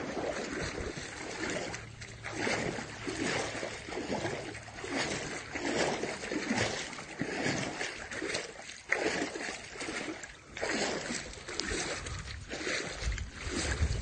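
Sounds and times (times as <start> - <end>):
floodwater splashing: 0.0 - 14.0.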